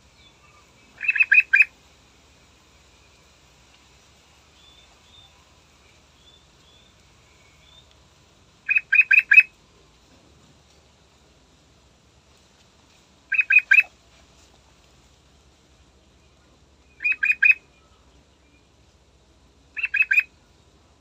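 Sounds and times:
faint high chirps: 0.0s - 1.8s, 2.4s - 9.6s, 16.0s - 18.8s.

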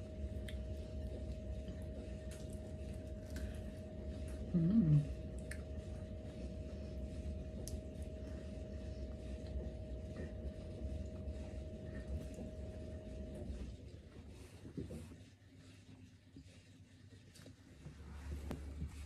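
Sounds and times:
low hummed voice: 0.0s - 13.6s
wet eating and chewing: 0.0s - 13.8s
appliance humming with thin whine: 0.0s - 19.0s.

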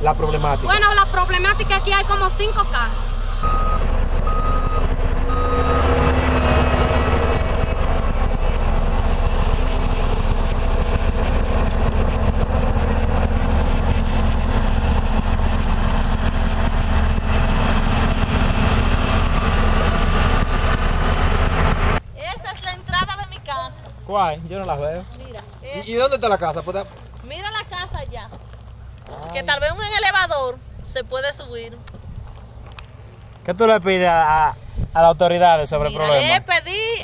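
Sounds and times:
diesel machinery rumble: 0.0s - 37.0s
reversing alarm beeping: 0.7s - 6.1s.

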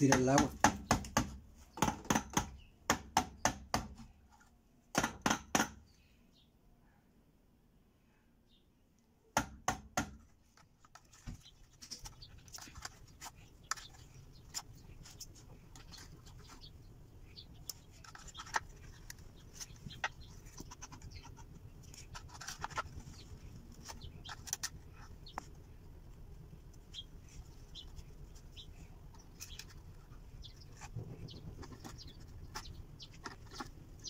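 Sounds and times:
sharp knocks on plastic pump: 0.1s - 4.0s, 4.9s - 5.8s.

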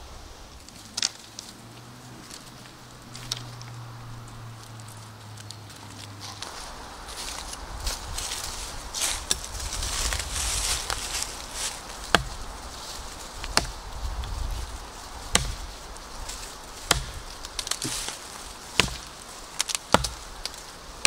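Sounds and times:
dry leaves rustling: 0.0s - 21.0s
knife chopping into sapling: 12.1s - 12.4s, 15.3s - 15.6s, 16.9s - 18.2s, 18.8s - 20.2s.

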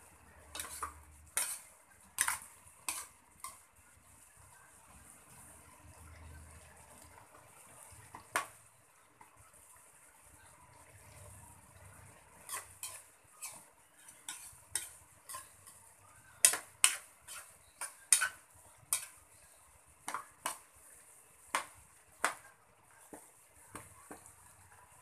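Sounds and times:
steady cooking hiss: 0.0s - 25.0s
metal spatula scraping a wok: 0.2s - 3.7s, 12.1s - 19.5s.

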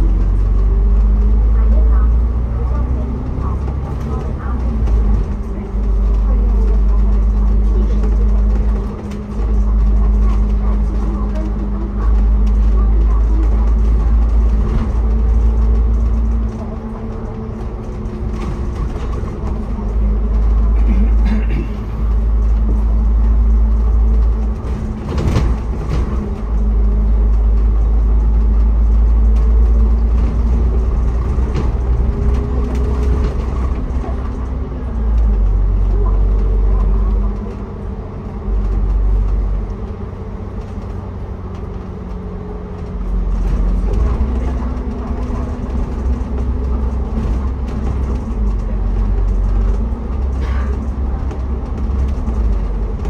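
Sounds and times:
vehicle ride rumble: 0.0s - 53.0s.

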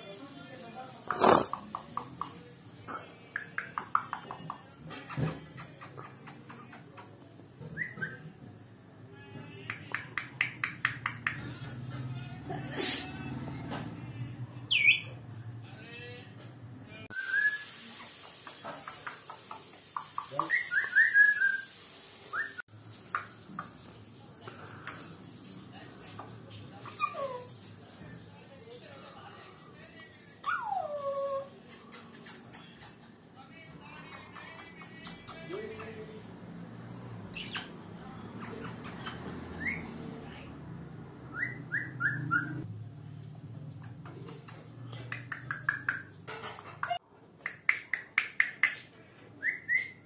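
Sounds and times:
parrot whistling: 7.7s - 8.3s, 17.1s - 17.7s, 20.4s - 21.7s, 41.3s - 42.6s, 49.4s - 50.0s.

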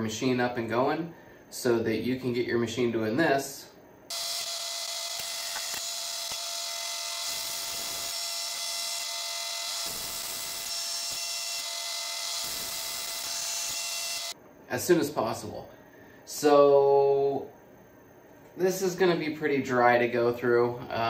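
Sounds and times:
milling machine cutting metal: 4.1s - 14.4s.

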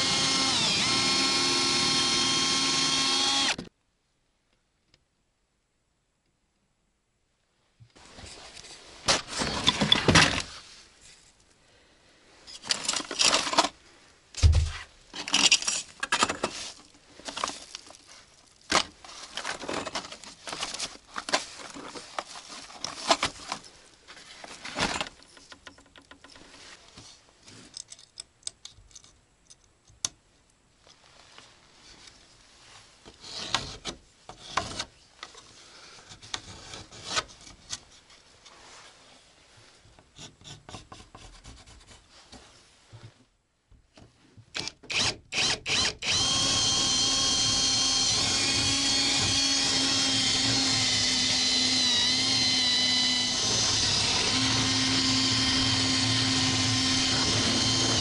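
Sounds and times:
cordless drill whining: 0.0s - 3.6s, 44.6s - 58.0s.

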